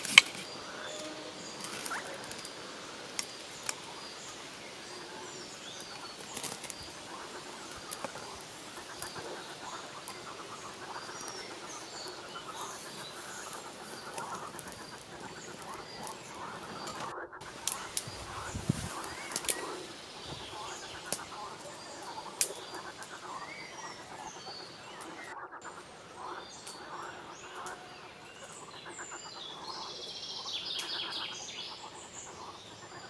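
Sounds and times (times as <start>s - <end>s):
dry grass rustling and crackling: 0.0s - 24.3s
small birds chirping: 0.0s - 33.0s.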